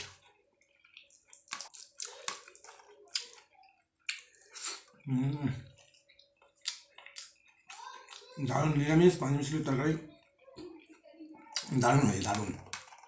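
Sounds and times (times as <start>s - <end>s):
chewing and lip smacks: 0.6s - 5.0s, 5.8s - 8.4s.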